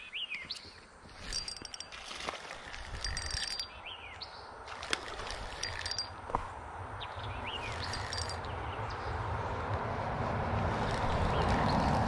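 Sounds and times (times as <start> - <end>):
birds chirping and trilling: 0.0 - 2.0, 2.6 - 6.2, 6.9 - 9.3.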